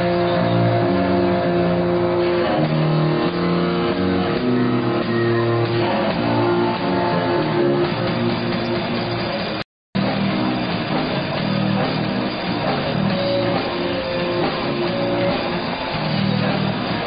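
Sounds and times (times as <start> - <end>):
rock band playing live: 0.0 - 17.0.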